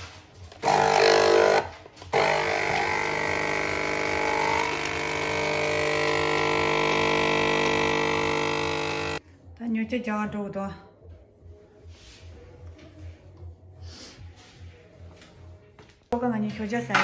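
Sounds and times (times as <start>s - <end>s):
coffee machine pump buzzing: 0.6s - 9.2s.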